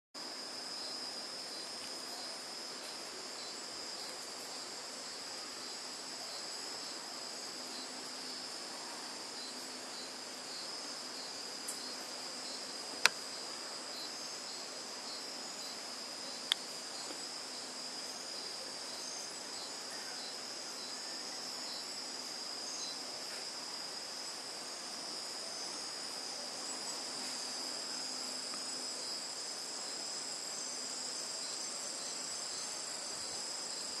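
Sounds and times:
insects trilling: 0.2 - 34.0.

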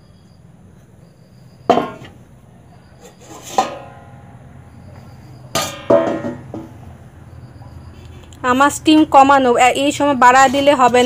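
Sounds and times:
metal kitchen utensils clanking: 1.7 - 2.3, 2.9 - 4.4, 5.0 - 6.9.

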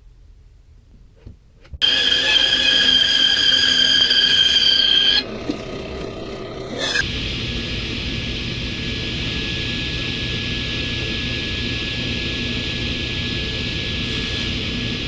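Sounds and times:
table saw whirring: 1.8 - 7.0
bandsaw high-pitched whine: 1.8 - 7.2.

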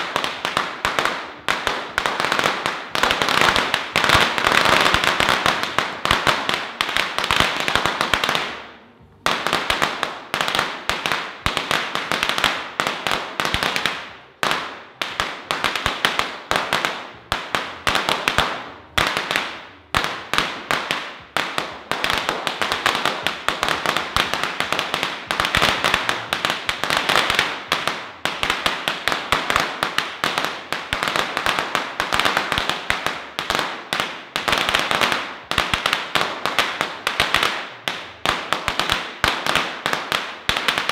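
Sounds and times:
firecrackers crackling: 0.0 - 40.9.

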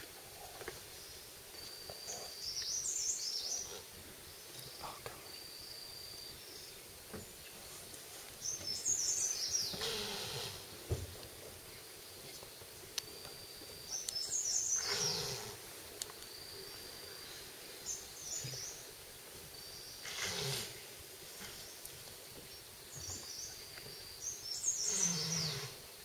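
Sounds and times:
forest background noise: 0.0 - 26.0
birds chirping: 0.3 - 26.0.

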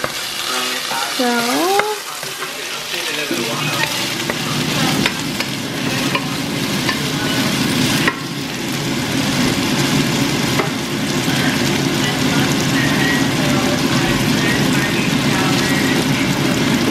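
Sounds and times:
chicken sizzling in a frying pan: 0.0 - 16.9
wooden spoon knocking on pan: 4.2 - 7.0, 8.0 - 8.3, 10.6 - 10.8.

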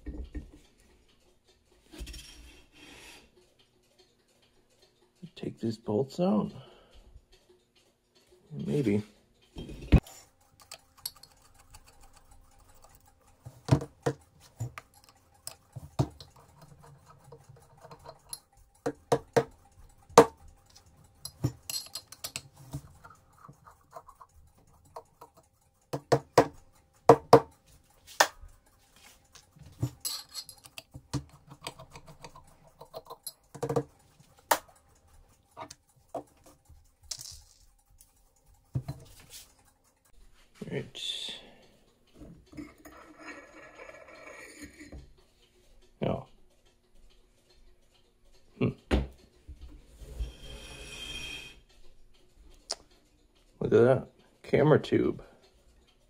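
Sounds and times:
nut driver clicking and scraping: 9.9 - 40.2, 42.2 - 45.2.

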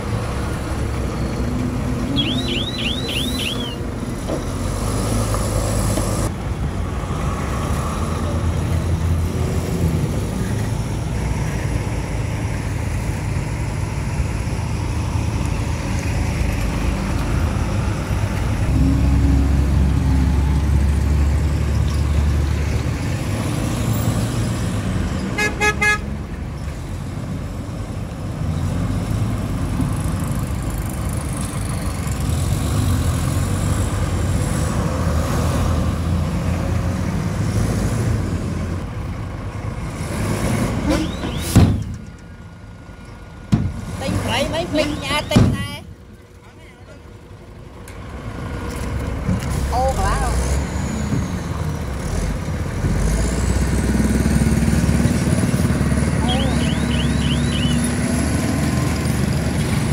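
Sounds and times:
dump truck engine revving: 0.0 - 42.1, 47.3 - 59.9
heavy diesel engines running: 0.0 - 59.9
vehicle horn short toots: 2.1 - 3.8, 25.4 - 26.0.

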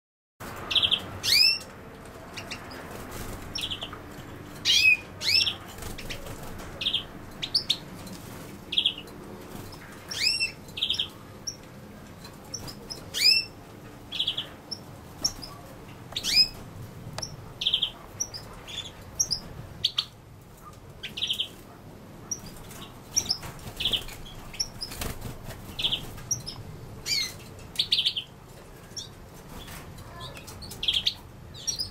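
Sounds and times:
goldfinch calling: 0.7 - 1.7, 4.6 - 6.2, 9.7 - 11.6, 12.5 - 15.5, 25.7 - 28.3.

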